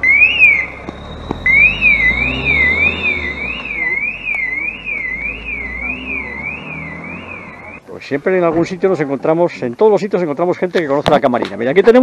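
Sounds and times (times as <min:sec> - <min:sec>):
electronic warning siren wailing: 0:00.0 - 0:07.8.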